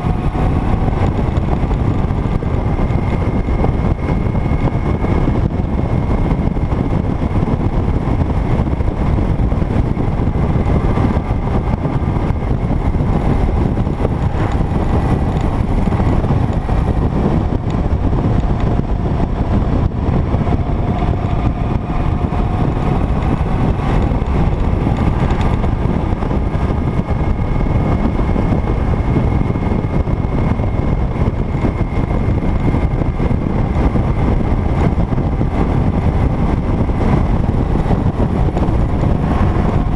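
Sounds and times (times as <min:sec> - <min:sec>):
motorcycle engine cruising: 0:00.0 - 0:39.9
wind rushing over microphone: 0:00.0 - 0:39.9.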